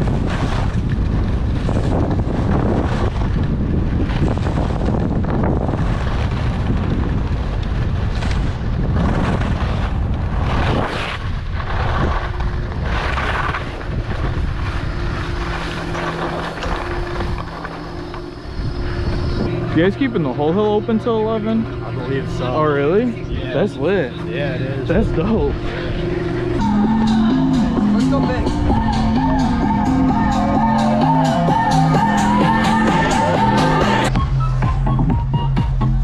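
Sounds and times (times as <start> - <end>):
skis scraping over snow: 0.0 - 26.5
wind buffeting microphone: 0.0 - 35.4.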